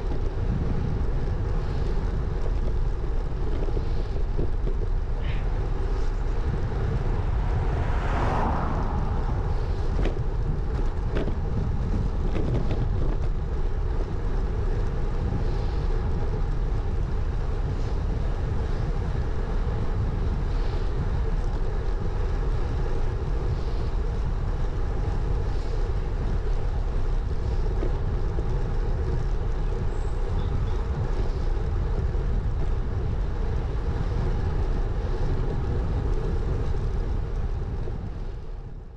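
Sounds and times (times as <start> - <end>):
wind and road noise: 0.0 - 38.9
car passing: 5.2 - 12.6.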